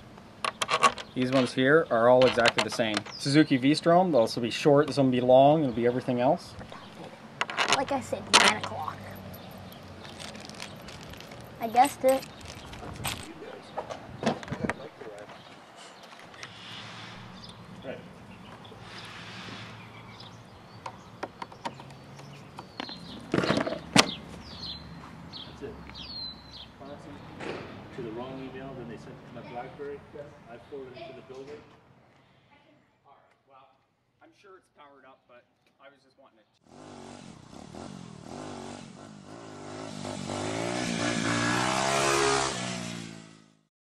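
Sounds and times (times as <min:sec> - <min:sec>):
fabric bag rustling: 0:10.0 - 0:13.4
motorcycle engine revving: 0:36.6 - 0:43.7.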